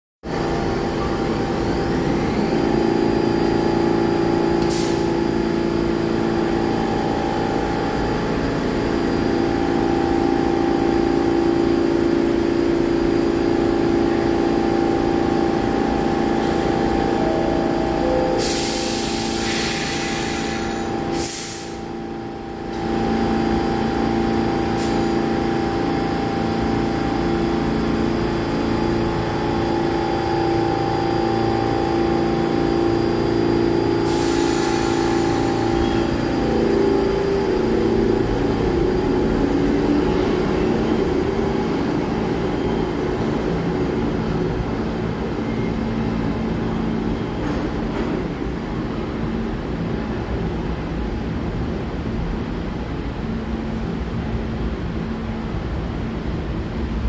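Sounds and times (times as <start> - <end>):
train equipment humming: 0.3 - 57.0
air hiss: 4.6 - 5.1, 18.4 - 21.8, 34.0 - 35.6
two-note door chime: 16.4 - 19.0.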